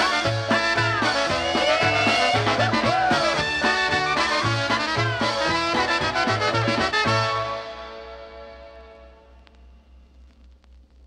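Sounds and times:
polka band playing: 0:00.0 - 0:08.4.

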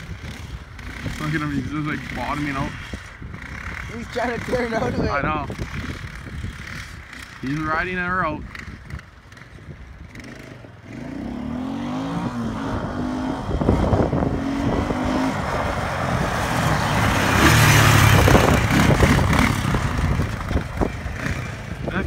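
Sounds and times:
atv engine revving: 0:00.0 - 0:22.0.

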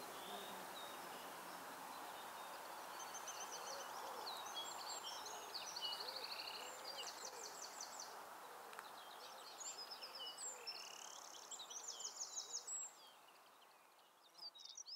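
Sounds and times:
outdoor hiss: 0:00.0 - 0:03.2
songbirds singing: 0:00.0 - 0:14.9.

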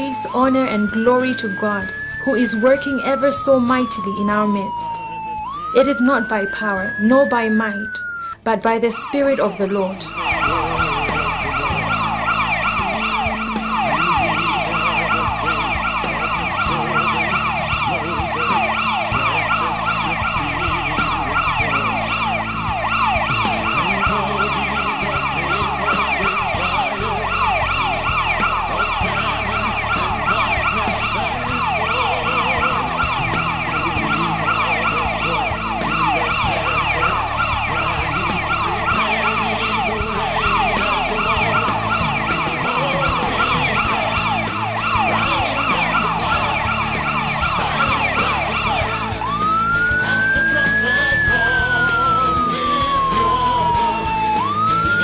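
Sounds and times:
ambulance siren yelping: 0:00.0 - 0:55.0.

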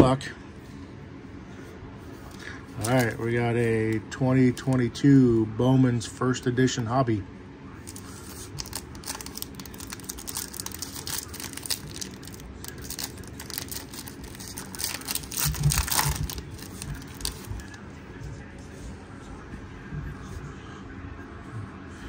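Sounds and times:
foil wrapper crinkling: 0:02.8 - 0:03.4, 0:07.9 - 0:17.8.

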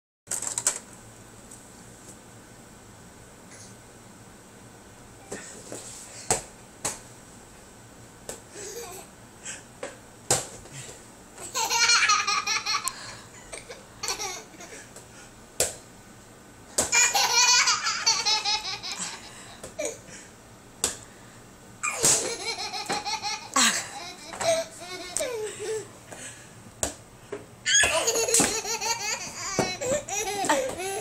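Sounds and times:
baby laughing: 0:11.4 - 0:13.0, 0:13.6 - 0:14.8, 0:16.9 - 0:20.0, 0:21.8 - 0:25.9, 0:27.7 - 0:31.0.

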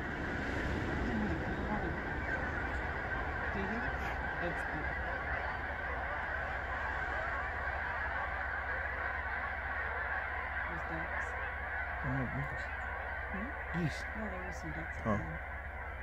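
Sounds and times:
geese honking: 0:00.0 - 0:16.0.

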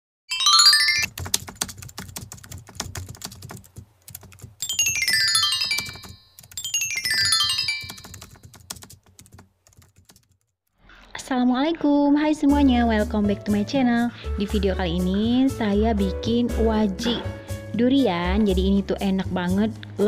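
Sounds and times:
falling chime-like tones: 0:00.3 - 0:01.1, 0:04.6 - 0:08.2
rapid sharp clicks: 0:01.0 - 0:07.2.

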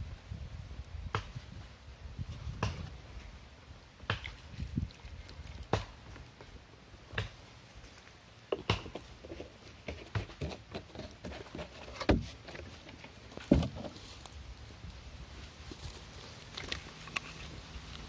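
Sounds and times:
handling knocks and thumps: 0:08.5 - 0:14.2
rustling on dry leaves: 0:09.0 - 0:18.0.

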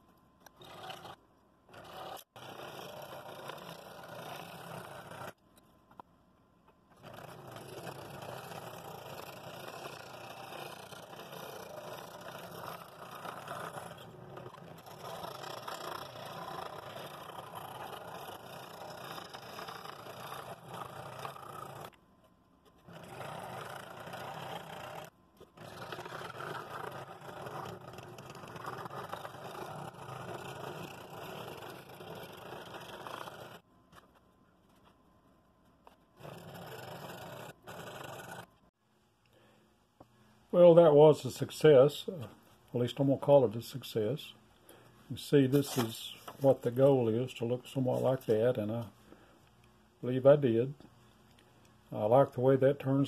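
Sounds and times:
scroll saw cutting wood: 0:00.5 - 0:05.4, 0:07.0 - 0:22.0, 0:22.7 - 0:33.6, 0:35.9 - 0:38.5.

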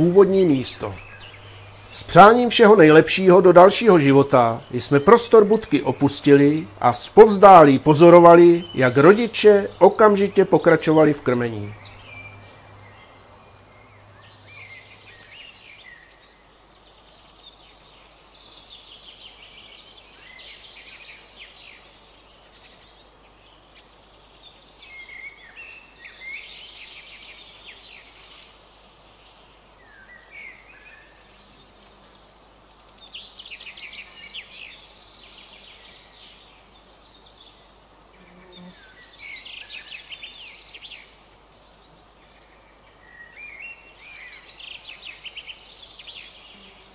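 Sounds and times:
birds singing and calling: 0:00.0 - 0:46.9
faint background hiss: 0:00.0 - 0:46.9.

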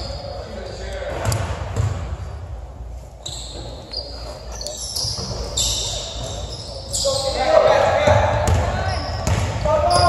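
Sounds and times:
sneakers squeaking: 0:00.0 - 0:10.0
basketball bouncing on wooden floor: 0:08.0 - 0:10.0.

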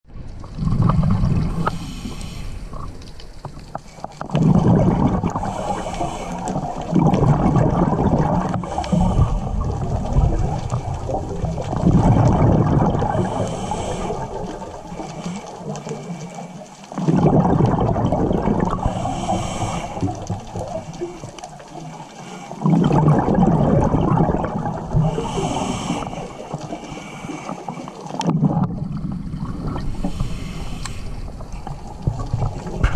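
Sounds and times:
rumbling exhaust bubbles: 0:00.2 - 0:01.9, 0:02.6 - 0:21.8, 0:22.5 - 0:26.9, 0:28.2 - 0:32.9
regulator hiss on inhale: 0:01.6 - 0:03.0, 0:05.4 - 0:06.8, 0:08.6 - 0:10.8, 0:13.2 - 0:16.9, 0:18.7 - 0:22.7, 0:25.0 - 0:28.2, 0:29.8 - 0:31.8.

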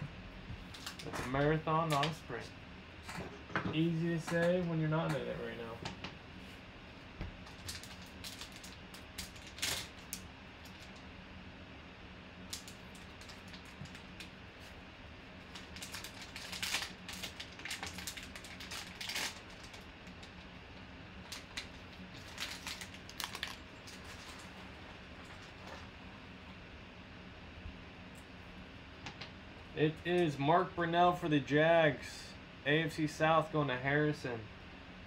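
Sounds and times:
plastic pouch crinkling: 0:07.5 - 0:10.1, 0:15.4 - 0:20.4, 0:21.2 - 0:25.9.

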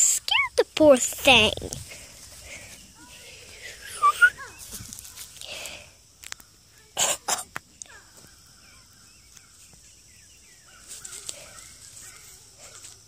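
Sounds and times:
rough coughs: 0:07.0 - 0:07.5.

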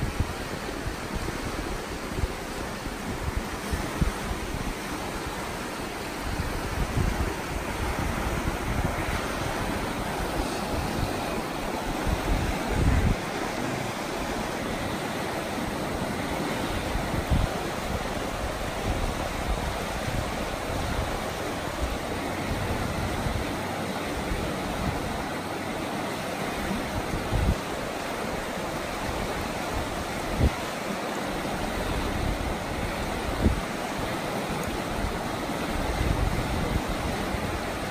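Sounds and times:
wind bumps on microphone: 0:00.0 - 0:05.4, 0:06.2 - 0:14.1, 0:16.7 - 0:23.4, 0:26.9 - 0:27.7, 0:31.9 - 0:33.7, 0:35.8 - 0:37.9
river water rushing over rocks: 0:00.0 - 0:37.9.

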